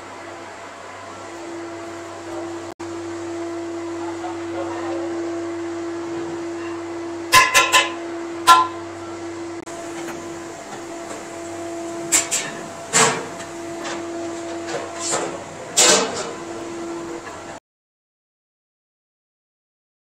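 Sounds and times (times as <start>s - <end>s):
steady hum: 0.0s - 17.6s.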